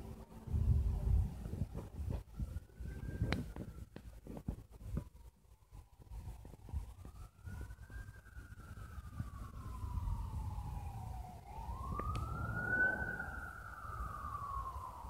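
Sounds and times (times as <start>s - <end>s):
emergency vehicle siren wailing: 0.0s - 15.0s
low rumble: 8.8s - 15.0s.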